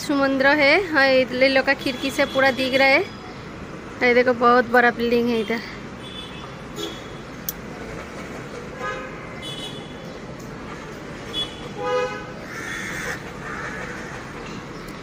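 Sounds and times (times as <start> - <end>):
road traffic noise: 0.0 - 15.0
vehicle horn honks: 11.3 - 12.3.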